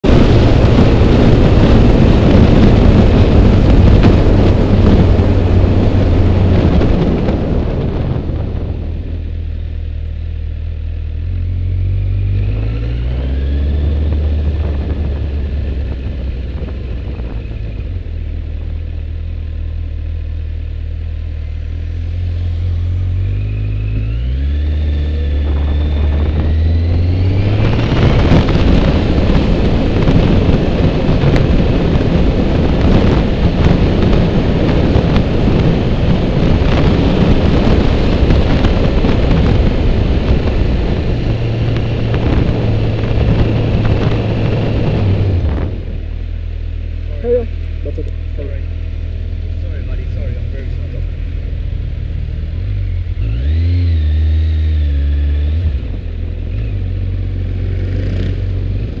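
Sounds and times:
wind rushing over microphone: 0.0 - 19.9, 20.8 - 59.0
motorcycle engine accelerating: 0.0 - 59.0.

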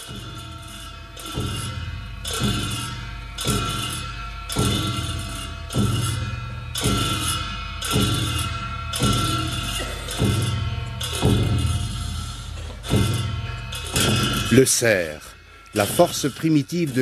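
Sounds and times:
large drum beats: 0.0 - 14.8, 15.7 - 17.0
cymbals ringing: 0.0 - 17.0.

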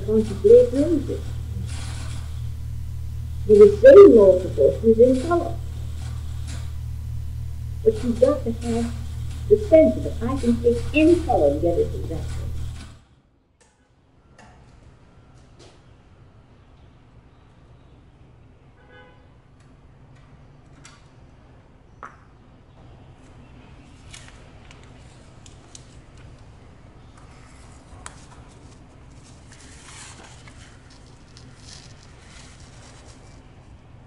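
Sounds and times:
faint low hum: 0.0 - 13.0
light scratchy rustling: 0.0 - 13.0, 27.2 - 33.7.

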